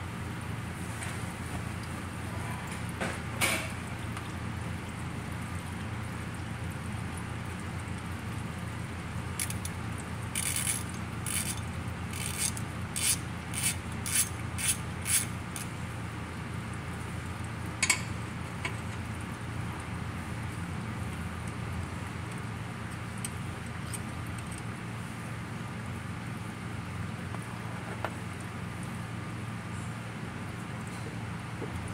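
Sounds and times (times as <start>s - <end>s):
steady low hum: 0.0s - 31.9s
ratchet wrench clicking: 9.4s - 9.7s, 10.3s - 15.7s.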